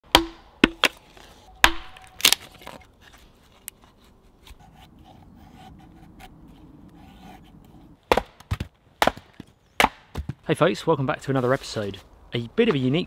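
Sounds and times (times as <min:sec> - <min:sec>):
hatchet knocking wood: 0:00.1 - 0:00.9
blade scraping wood: 0:02.4 - 0:08.0.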